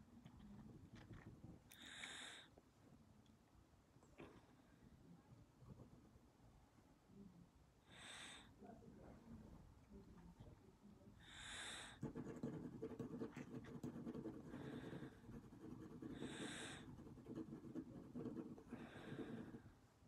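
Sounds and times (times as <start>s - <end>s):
short breaths: 7.9s - 8.6s, 11.2s - 12.0s
pencil scratching on paper: 12.0s - 19.7s.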